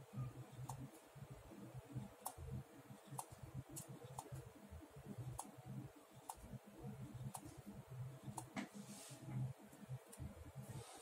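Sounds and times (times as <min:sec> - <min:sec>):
sharp pen ticks: 0:03.1 - 0:04.3, 0:06.2 - 0:06.4.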